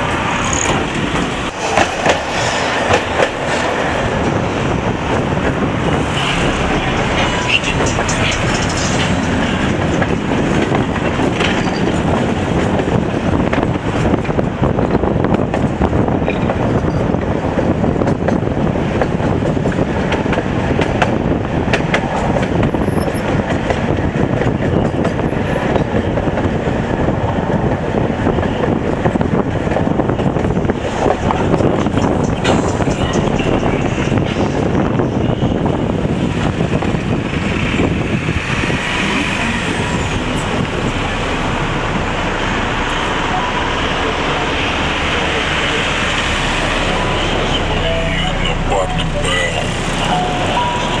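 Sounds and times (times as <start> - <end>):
tram wheels rumbling: 0.0 - 51.0.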